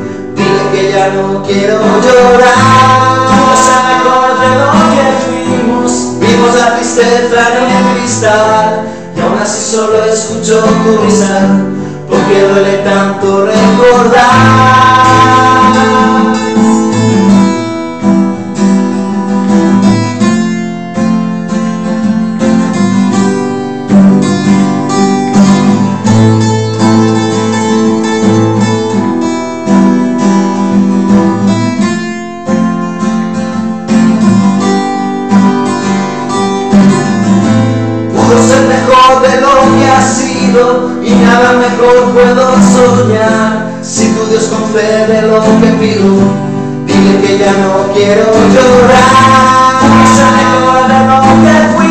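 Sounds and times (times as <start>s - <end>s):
person singing: 0.0s - 17.4s, 38.1s - 51.9s
acoustic guitars playing: 0.0s - 51.9s.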